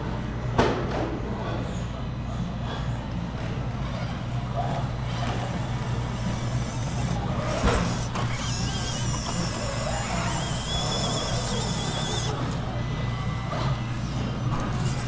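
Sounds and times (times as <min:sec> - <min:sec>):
small electric motor hum: 0:03.8 - 0:15.0.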